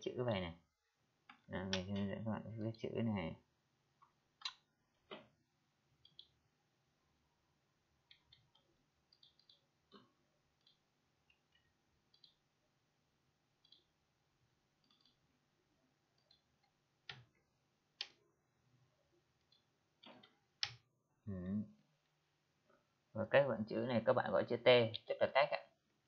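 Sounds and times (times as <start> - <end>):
computer mouse clicks: 6.0 - 6.4, 8.1 - 12.4, 13.6 - 13.9, 14.8 - 15.2, 16.2 - 17.4, 19.4 - 20.8.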